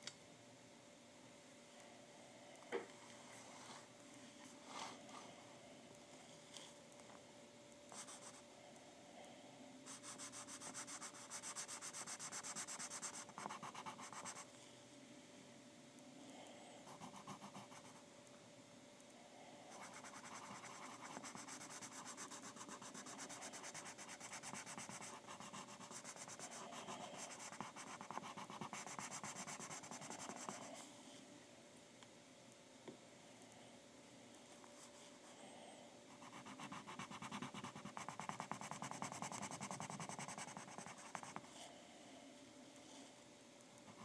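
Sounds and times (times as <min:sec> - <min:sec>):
pencil shading on paper: 0:09.9 - 0:14.5, 0:16.9 - 0:18.0, 0:19.7 - 0:30.7, 0:36.1 - 0:41.5.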